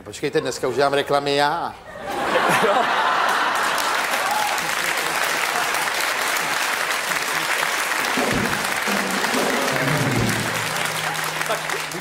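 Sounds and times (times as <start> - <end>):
studio audience applauding: 2.8 - 12.0.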